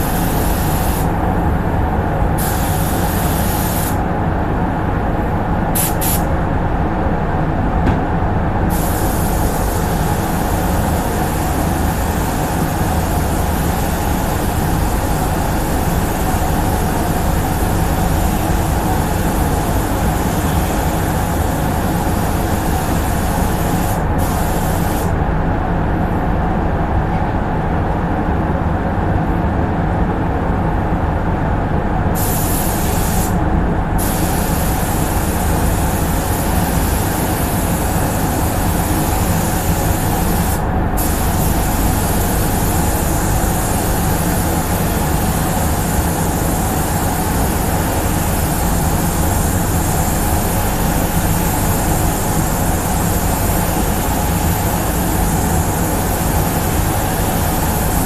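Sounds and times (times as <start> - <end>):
spray gun air hiss: 0.0 - 1.2, 2.4 - 4.0, 5.7 - 6.3, 8.7 - 25.2, 32.2 - 33.4, 34.0 - 58.0
ventilation running: 0.0 - 58.0.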